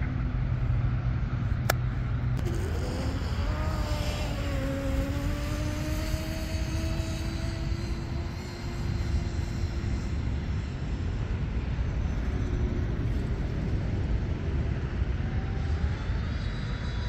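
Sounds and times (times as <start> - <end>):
electric motor whining: 2.4 - 8.3.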